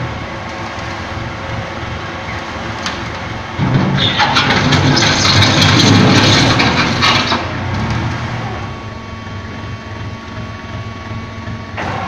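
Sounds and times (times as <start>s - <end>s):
diesel engine rumbling: 0.0s - 12.0s
rushing clattering noise: 2.8s - 8.1s.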